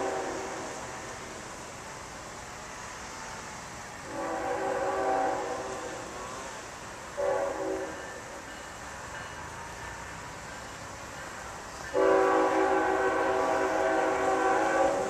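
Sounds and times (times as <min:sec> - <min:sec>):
distant locomotive air horn: 0:00.0 - 0:01.0, 0:04.0 - 0:06.5, 0:07.2 - 0:08.3, 0:11.9 - 0:15.0.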